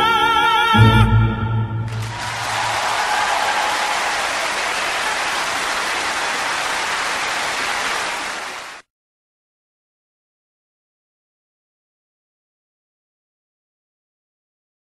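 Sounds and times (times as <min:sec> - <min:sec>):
audience applauding: 0:01.9 - 0:08.9.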